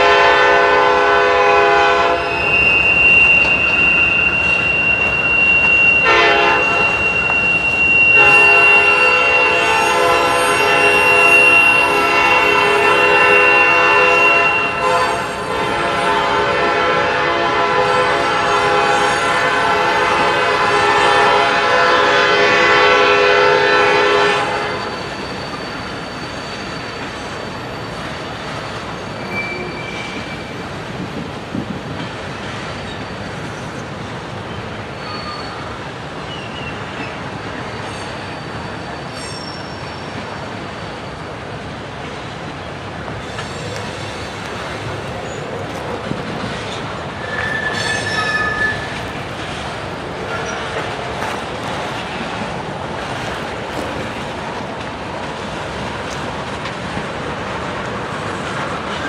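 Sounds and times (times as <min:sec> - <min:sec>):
locomotive horn: 0:00.0 - 0:25.2, 0:47.2 - 0:54.4
freight train rolling past: 0:00.0 - 0:59.0
train wheel squeals: 0:01.6 - 0:16.6, 0:17.8 - 0:30.8, 0:31.5 - 0:56.6.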